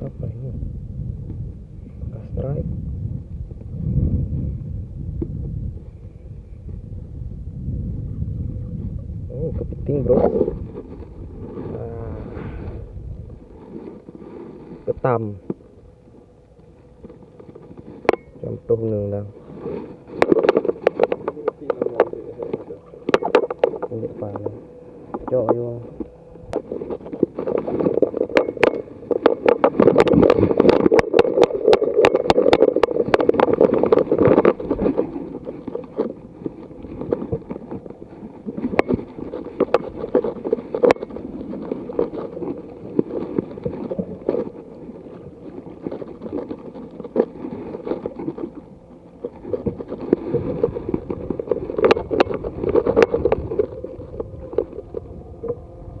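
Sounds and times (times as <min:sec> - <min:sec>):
low hum: 0:00.0 - 0:56.0
knocks and clatter in wooden boat: 0:19.4 - 0:55.7.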